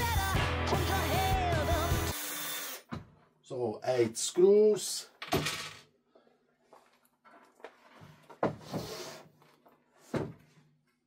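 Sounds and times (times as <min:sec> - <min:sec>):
wooden cabinet knocking and scraping: 0:07.9 - 0:09.0, 0:10.0 - 0:10.6.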